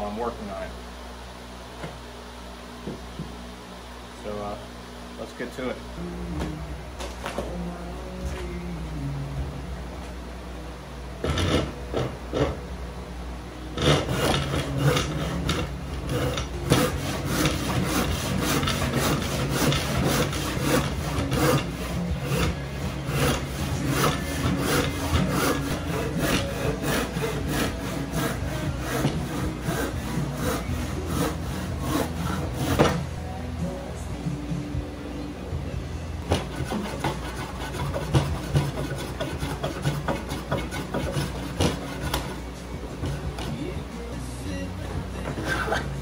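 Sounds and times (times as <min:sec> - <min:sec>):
hand saw cutting wood: 0:11.2 - 0:12.6, 0:13.8 - 0:33.1, 0:36.3 - 0:42.4, 0:45.2 - 0:46.0.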